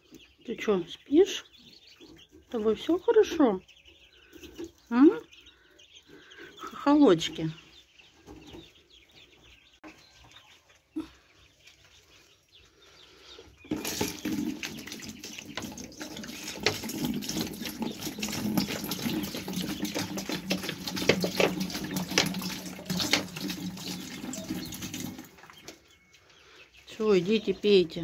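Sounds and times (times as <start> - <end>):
chicks peeping: 0.0 - 28.0
water pouring from plastic bottle: 13.7 - 25.6.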